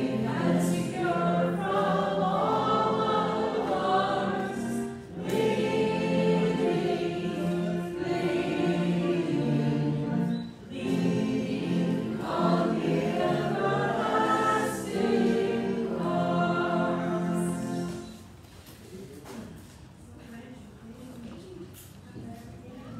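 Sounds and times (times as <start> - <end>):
choir singing: 0.0 - 18.4.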